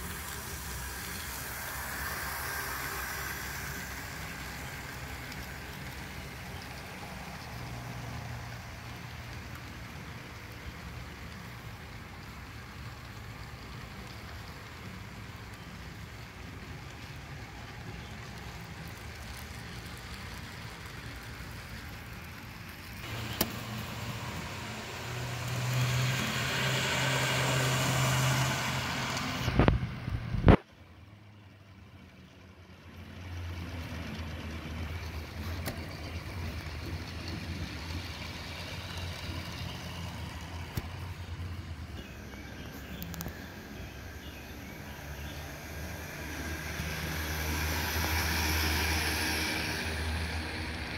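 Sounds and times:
model train hum: 0:00.0 - 0:50.9.

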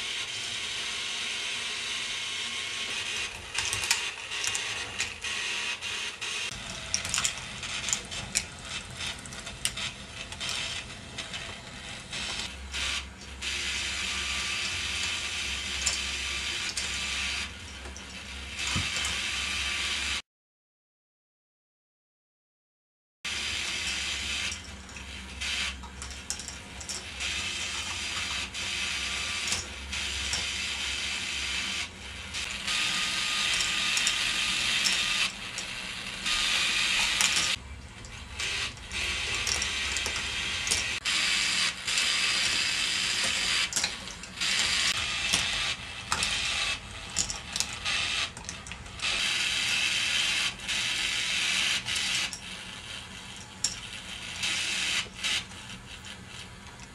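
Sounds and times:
balls rattling on plastic tracks: 0:23.8 - 0:31.8, 0:32.4 - 0:55.4.

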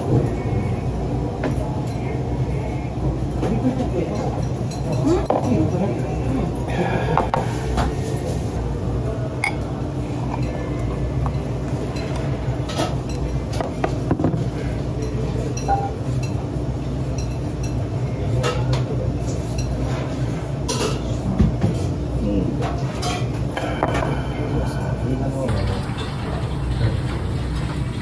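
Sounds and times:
steady low hum: 0:00.0 - 0:28.0
glass and dishes clinking: 0:09.4 - 0:09.7, 0:15.0 - 0:16.4.

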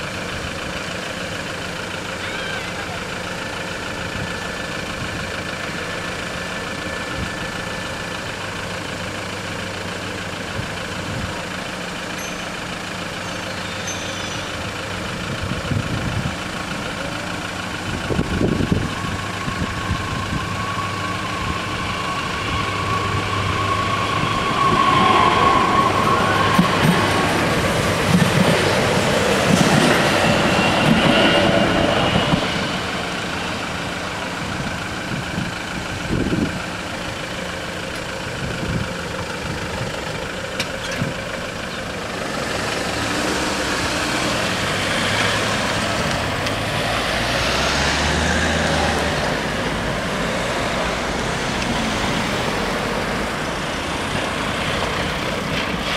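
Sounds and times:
cars starting and driving: 0:00.0 - 0:55.9
train rumbling on rails: 0:00.0 - 0:55.9.

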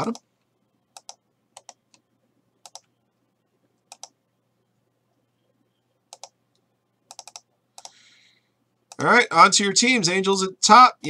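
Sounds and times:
computer mouse clicks: 0:00.9 - 0:02.0, 0:02.6 - 0:03.0, 0:03.8 - 0:04.2, 0:06.1 - 0:08.0.

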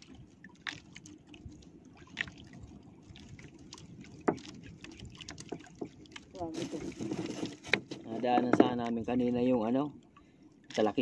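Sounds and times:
water lapping against boat hull: 0:00.0 - 0:11.0
light clicks and knocks: 0:07.6 - 0:09.0.

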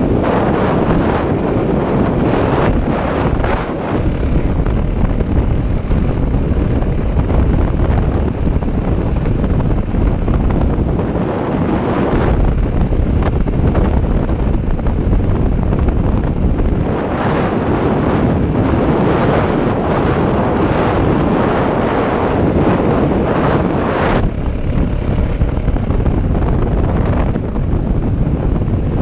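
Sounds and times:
motorcycle running on gravel: 0:00.0 - 0:29.0
wind buffeting microphone: 0:00.0 - 0:29.0.

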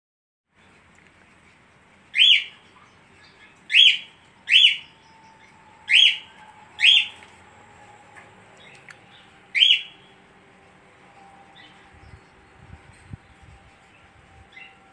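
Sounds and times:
budgerigar chirping: 0:02.1 - 0:02.6, 0:03.4 - 0:05.2, 0:05.9 - 0:07.2, 0:09.5 - 0:10.1.

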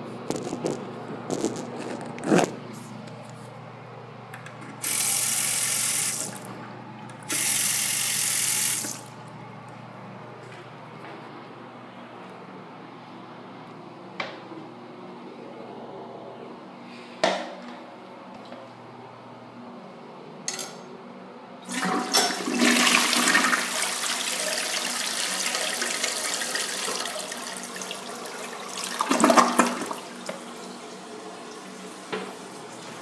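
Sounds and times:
fill valve hissing: 0:04.8 - 0:06.5, 0:07.2 - 0:09.1
toilet flushing water rushing: 0:04.8 - 0:06.5, 0:07.2 - 0:09.1, 0:21.7 - 0:33.0
toilet bowl siphon gulp: 0:28.8 - 0:30.2.

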